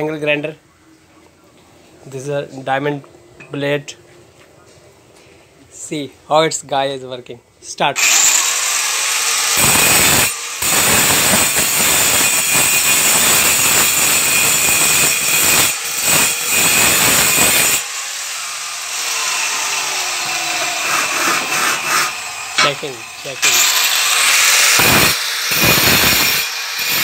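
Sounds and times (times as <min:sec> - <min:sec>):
angle grinder grinding marble: 0:08.0 - 0:27.0.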